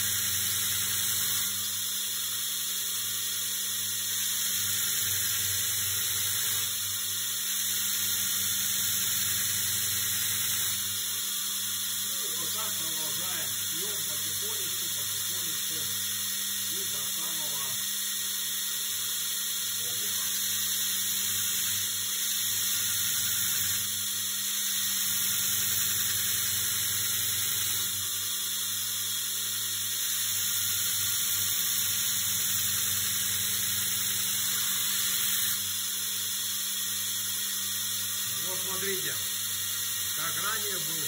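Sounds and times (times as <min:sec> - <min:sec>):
motor hum: 0:00.0 - 0:41.0
belt grinder hissing on steel: 0:04.4 - 0:18.3, 0:37.4 - 0:41.0.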